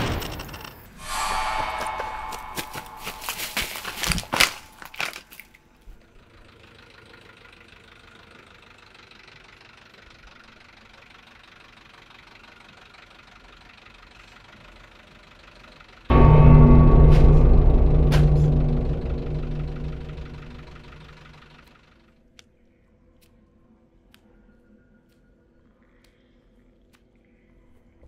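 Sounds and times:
footsteps through dry brush: 2.0 - 5.3.

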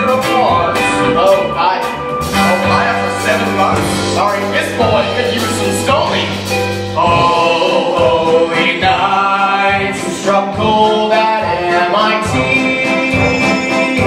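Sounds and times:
male voices singing in harmony: 7.0 - 14.0.

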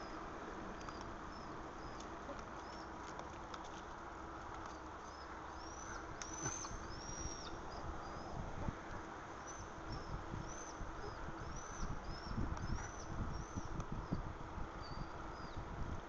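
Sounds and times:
bird chirping: 0.8 - 3.0, 4.7 - 8.4, 9.4 - 14.2.

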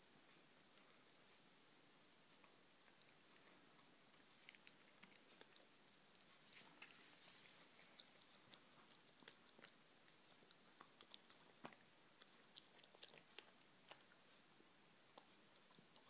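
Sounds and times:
puppy chewing rope toy: 2.4 - 16.0.

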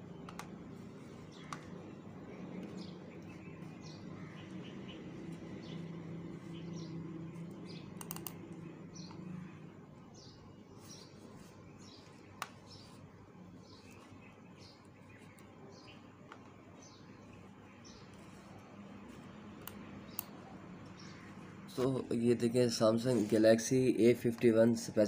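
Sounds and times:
faint low hum: 0.0 - 25.0
sharp click: 8.0 - 8.4.

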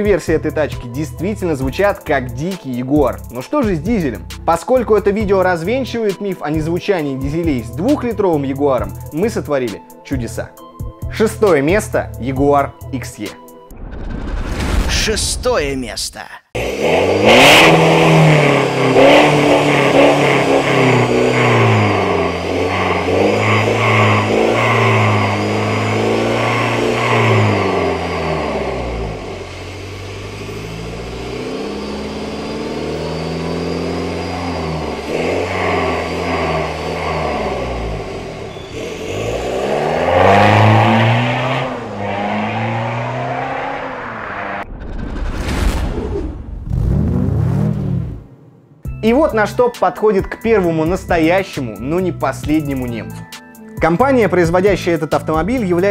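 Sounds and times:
car engine revving: 16.6 - 44.7, 46.5 - 49.4.

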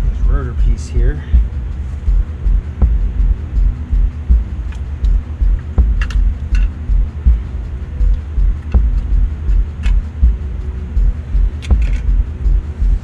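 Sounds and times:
low rumbling engine throb: 0.0 - 13.0
metallic clicks of hand tools: 6.0 - 6.8, 9.6 - 10.1, 11.5 - 12.1.

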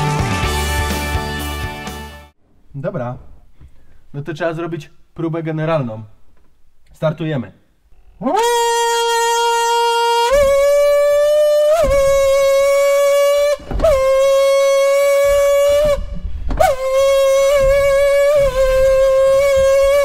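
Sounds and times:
horn-like wind instrument notes: 8.0 - 20.0.

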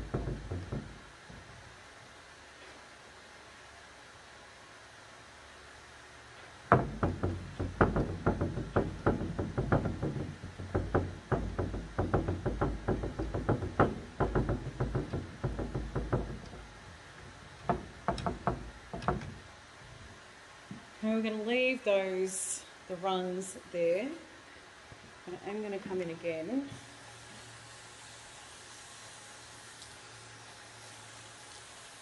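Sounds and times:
paint dabbing on wooden cupboard: 0.0 - 1.6, 6.7 - 20.1.

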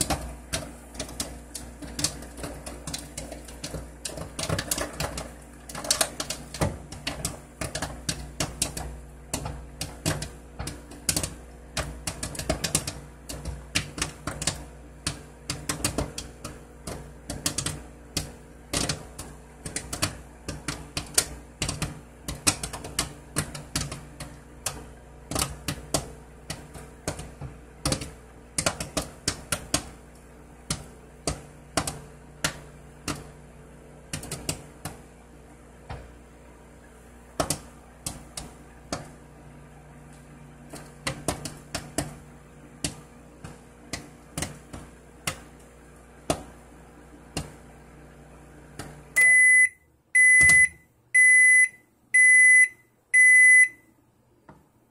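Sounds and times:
popcorn popping: 0.0 - 51.4
microwave oven hum: 0.0 - 54.9
microwave beeps: 49.2 - 54.0.

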